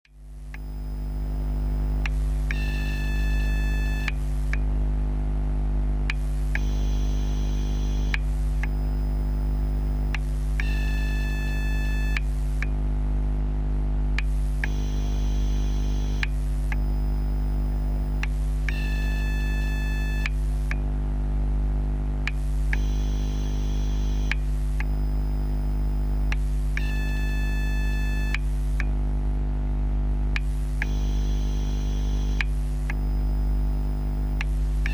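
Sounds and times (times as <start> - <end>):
battery charger humming: 0.4 - 4.7, 6.0 - 12.8, 14.1 - 20.9, 22.3 - 28.9, 30.3 - 34.9
high-pitched electrical whining: 6.1 - 12.6, 14.2 - 20.7, 22.3 - 28.6, 30.4 - 34.9.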